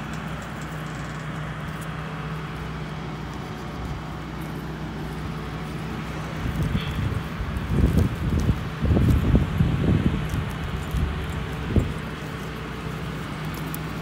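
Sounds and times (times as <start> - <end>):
engine humming steadily: 0.0 - 14.0.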